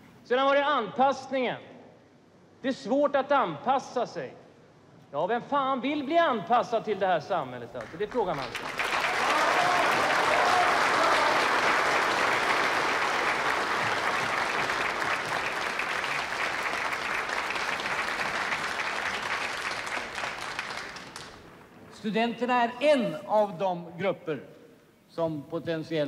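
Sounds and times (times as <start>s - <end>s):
crowd applauding: 7.8s - 21.6s.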